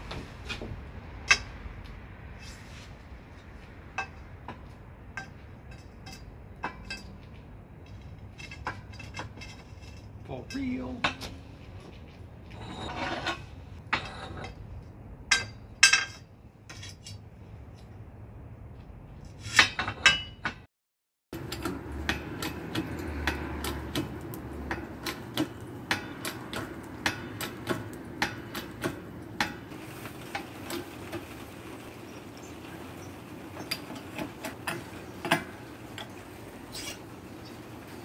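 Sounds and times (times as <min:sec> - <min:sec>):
metal scrape: 0:02.3 - 0:03.2, 0:08.2 - 0:11.8, 0:12.5 - 0:14.6, 0:15.8 - 0:17.2, 0:19.3 - 0:20.3, 0:33.5 - 0:38.0.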